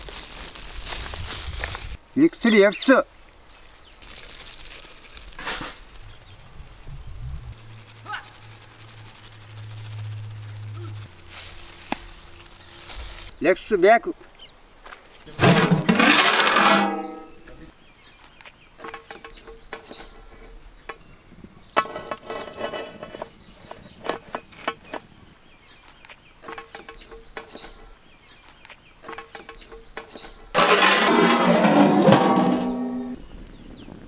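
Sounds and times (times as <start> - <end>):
pot lid scraping pot rim: 15.4 - 17.4, 21.8 - 23.3, 30.6 - 33.2.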